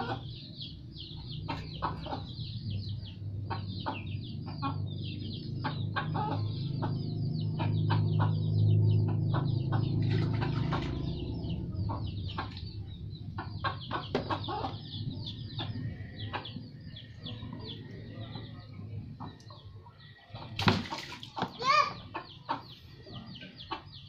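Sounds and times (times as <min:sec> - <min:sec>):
chickens clucking: 0:00.0 - 0:24.0
chicks peeping: 0:00.0 - 0:24.0
low hum: 0:04.2 - 0:20.5
hands splashing water in a tub: 0:20.6 - 0:21.5.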